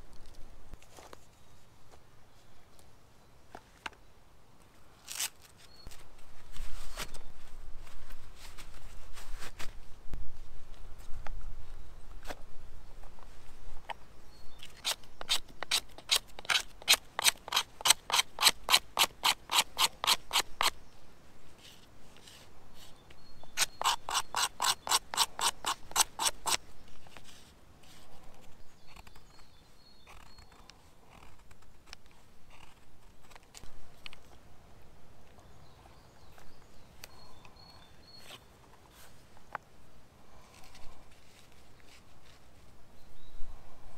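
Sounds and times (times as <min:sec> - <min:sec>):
knife scraping wooden stick: 0:14.6 - 0:20.8, 0:23.6 - 0:28.1.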